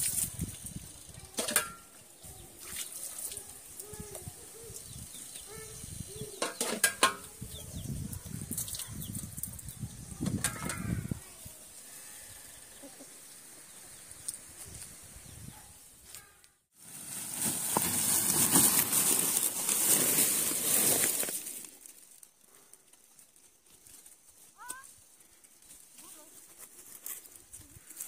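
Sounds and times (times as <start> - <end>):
water poured and splashing: 0.0 - 0.8, 2.6 - 3.5.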